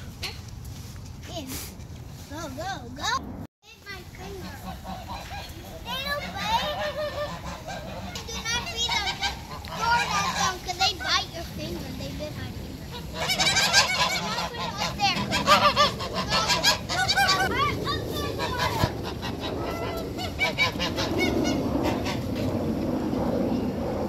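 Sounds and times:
geese honking: 4.2s - 11.0s, 12.9s - 22.3s.

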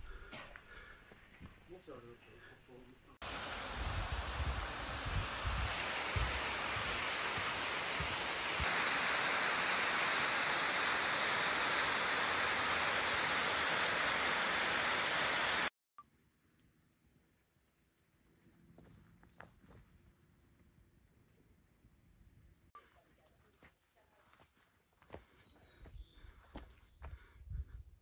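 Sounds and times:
waterfall rushing: 3.2s - 15.7s.

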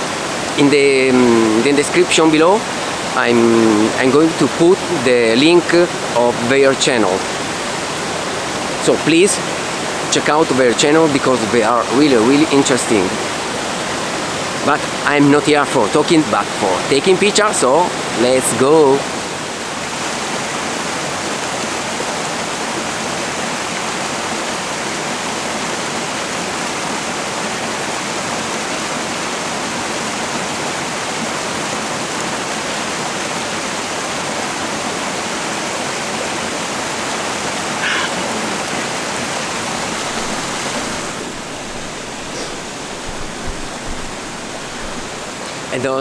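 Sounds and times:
waterfall rushing over rocks: 0.0s - 46.0s.

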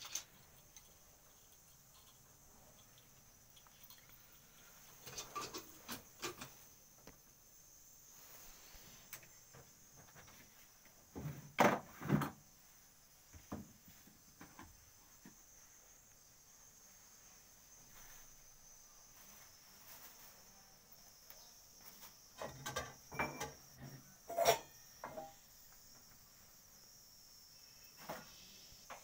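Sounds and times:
crickets chirring: 0.0s - 29.0s.

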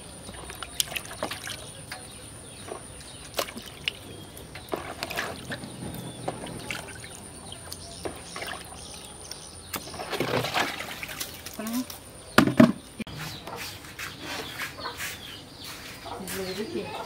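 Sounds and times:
water splashing in a plastic tub: 0.0s - 13.0s.

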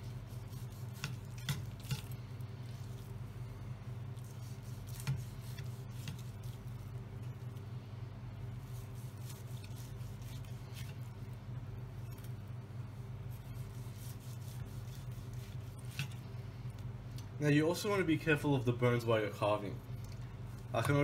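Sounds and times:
knife scraping and tapping board: 1.0s - 2.0s.

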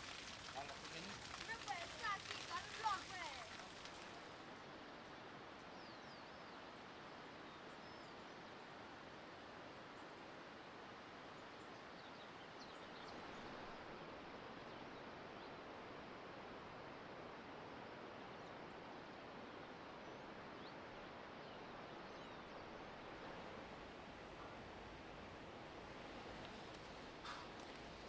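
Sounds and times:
small birds chirping: 22.0s - 28.0s.

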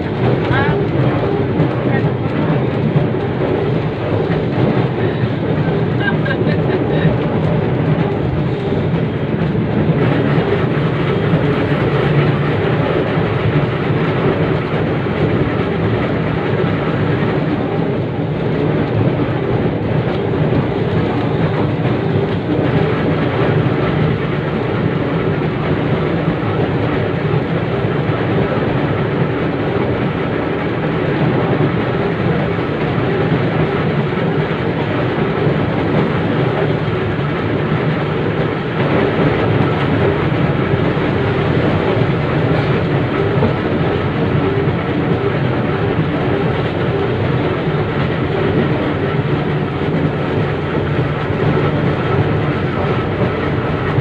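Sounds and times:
tram traction motors running: 0.0s - 54.0s
tram wheels rolling on rails: 0.0s - 54.0s.

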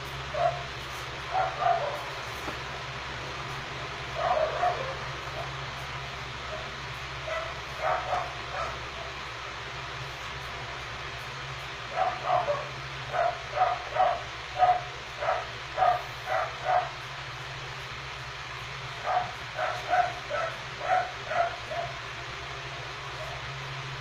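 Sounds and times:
steady low hum: 0.0s - 24.0s
dog barking: 0.3s - 0.7s, 1.3s - 2.2s, 4.1s - 5.5s, 6.5s - 9.1s, 11.9s - 17.0s, 19.0s - 22.0s.

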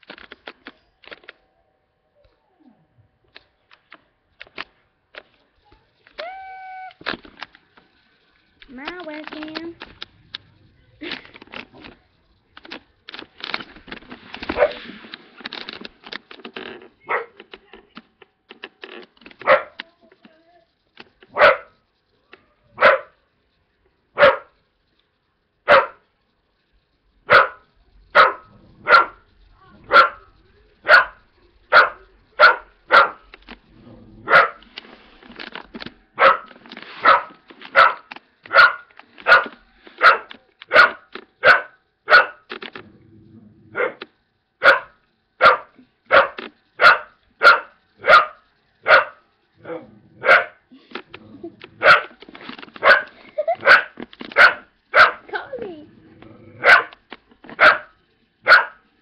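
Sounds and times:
dog barking: 17.1s - 17.4s, 19.4s - 19.8s, 21.3s - 21.8s, 22.8s - 23.2s, 24.2s - 24.6s, 25.7s - 26.0s, 27.3s - 27.6s, 28.2s - 29.2s, 29.9s - 33.2s, 34.3s - 34.6s, 36.2s - 42.4s, 43.8s - 44.0s, 44.6s - 50.6s, 51.8s - 52.1s, 52.8s - 55.3s, 56.6s - 57.0s, 57.6s - 58.8s.

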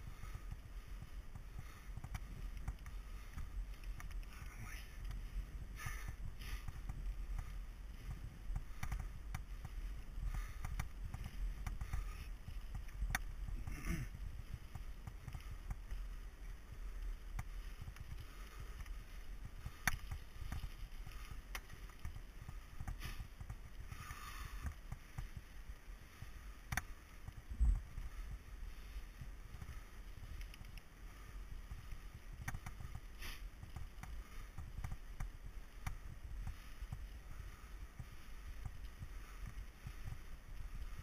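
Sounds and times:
wind rumble on microphone: 0.0s - 41.0s
bike knocks and rattles: 5.8s - 16.6s, 17.3s - 25.5s.

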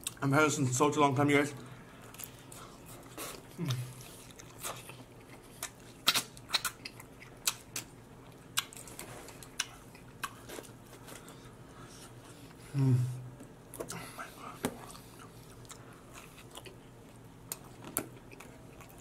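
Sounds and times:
man chewing with wet smacking: 0.0s - 0.2s, 2.0s - 12.6s, 13.4s - 19.0s
man humming mm: 12.6s - 14.7s.

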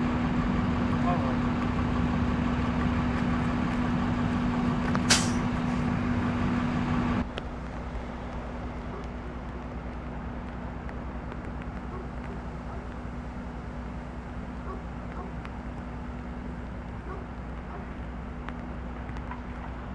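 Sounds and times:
distant traffic: 0.0s - 19.9s
heavy vehicle engine idling: 0.0s - 19.9s
rain: 0.0s - 19.9s
sharp hiss: 5.1s - 5.5s.

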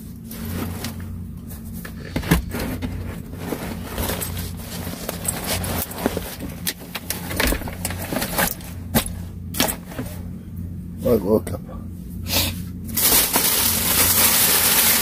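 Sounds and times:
steady low hum: 0.0s - 15.0s
objects handled and knocked: 1.8s - 10.2s.

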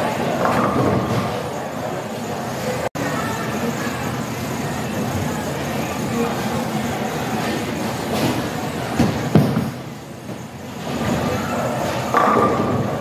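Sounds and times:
bowling alley clatter: 6.8s - 13.0s.

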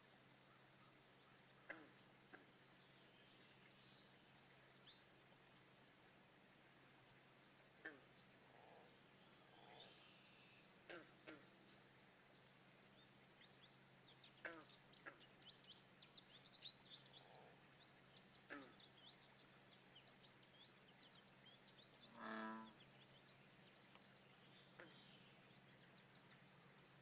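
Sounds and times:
songbirds chirping: 0.0s - 27.0s
frog croak: 1.6s - 2.5s, 7.8s - 8.9s, 10.9s - 11.5s, 14.4s - 15.2s, 18.5s - 18.8s, 22.1s - 22.8s.

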